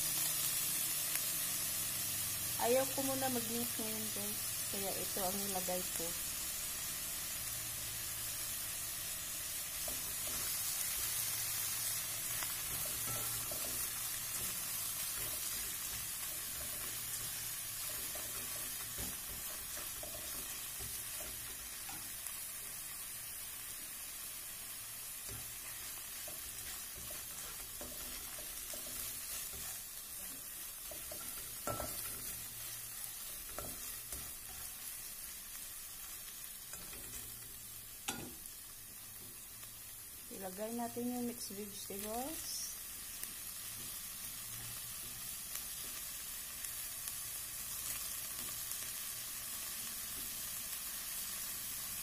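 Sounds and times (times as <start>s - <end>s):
fish frying in oil sizzling: 0.0s - 52.0s
spatula tapping and scraping: 12.3s - 22.8s, 25.2s - 34.9s.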